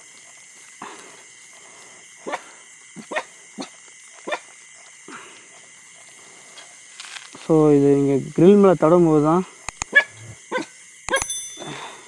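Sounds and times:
insects chirring: 0:00.0 - 0:12.0
dog barking: 0:02.2 - 0:04.5, 0:09.9 - 0:10.7.

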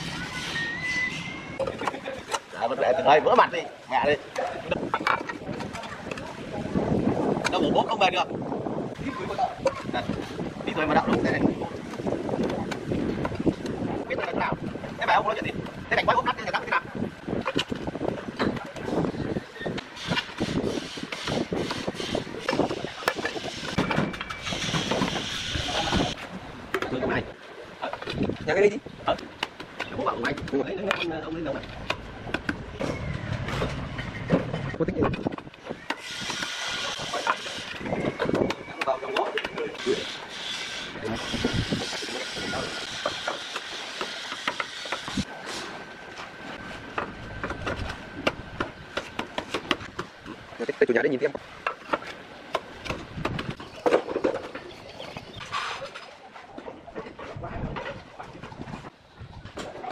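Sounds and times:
roof tiles clacking and scraping: 0:51.6 - 0:58.5.

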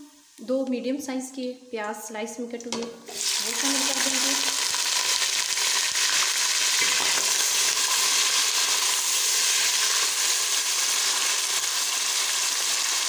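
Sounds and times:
onions sizzling in hot oil: 0:03.1 - 0:13.0.

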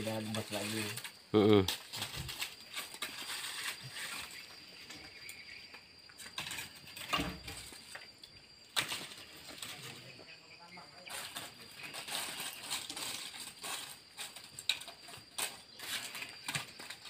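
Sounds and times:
charcoal lumps clinking and knocking: 0:00.0 - 0:05.0, 0:11.0 - 0:17.0.

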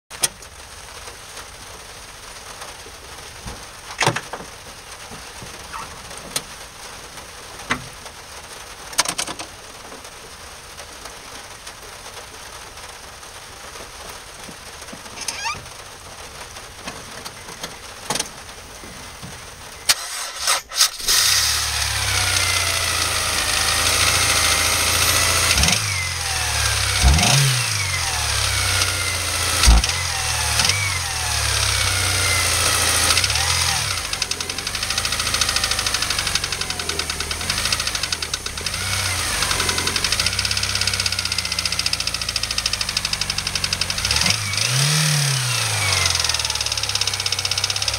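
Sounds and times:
low hiss: 0:00.2 - 0:44.6
car engine starting and running: 0:02.8 - 0:10.4, 0:13.8 - 0:47.9.

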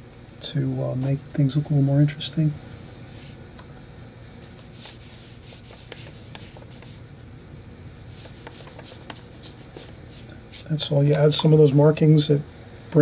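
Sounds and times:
room hum: 0:00.0 - 0:13.0
brush scratching on paper: 0:02.7 - 0:03.4, 0:04.5 - 0:07.0, 0:08.1 - 0:10.9.

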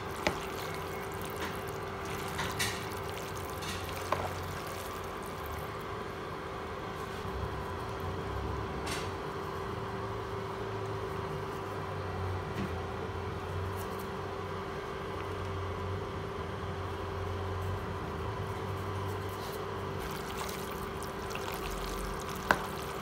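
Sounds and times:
kitchen appliance humming: 0:00.0 - 0:09.0, 0:19.8 - 0:23.0.

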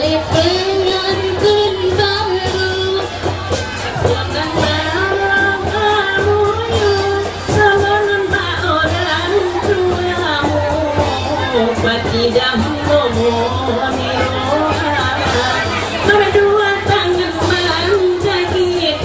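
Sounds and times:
band with percussion beat: 0:00.0 - 0:19.0
person singing long notes: 0:04.0 - 0:19.0.

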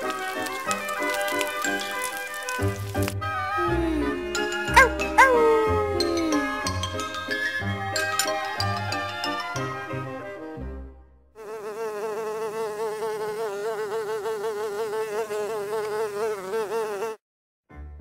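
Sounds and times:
music notes: 0:00.0 - 0:10.8
steady insect buzz: 0:11.4 - 0:17.2.

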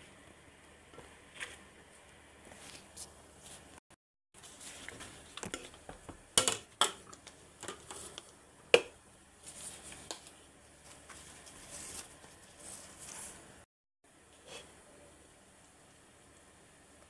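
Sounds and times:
kitchen items knocking and clinking: 0:05.2 - 0:09.0.

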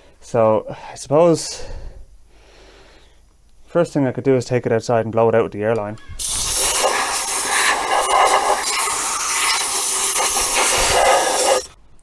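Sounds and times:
air blow gun hissing: 0:06.2 - 0:11.8.

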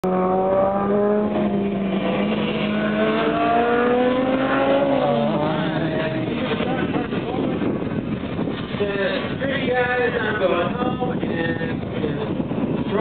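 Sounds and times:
kart engine running at high revs: 0:00.0 - 0:08.8.

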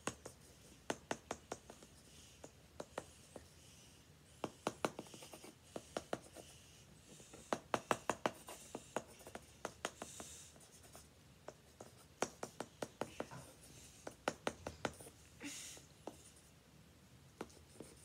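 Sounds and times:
stylus scratching paper: 0:04.4 - 0:15.1, 0:17.4 - 0:18.0.

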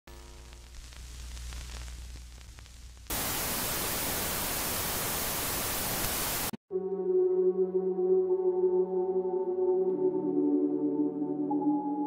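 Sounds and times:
low electrical hum: 0:00.1 - 0:06.4
white-noise static hiss: 0:00.1 - 0:06.6.

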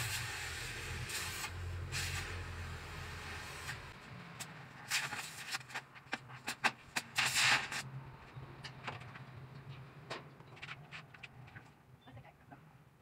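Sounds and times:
welding arc hissing and crackling: 0:00.0 - 0:04.0, 0:04.7 - 0:07.9.

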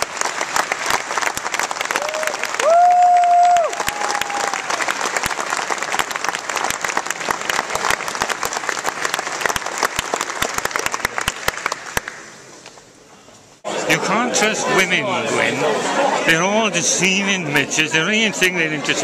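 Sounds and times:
audience applauding: 0:00.0 - 0:12.4.

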